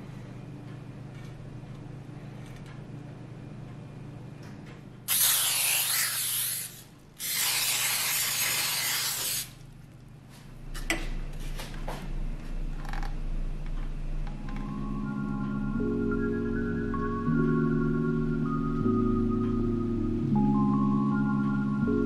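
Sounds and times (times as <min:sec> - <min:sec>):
aerosol spray hissing: 0:05.1 - 0:09.5.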